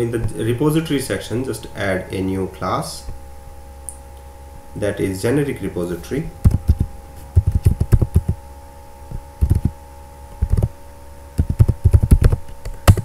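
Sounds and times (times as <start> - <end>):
computer keyboard typing: 6.4 - 8.4, 9.4 - 9.7, 10.4 - 10.7, 11.4 - 13.0.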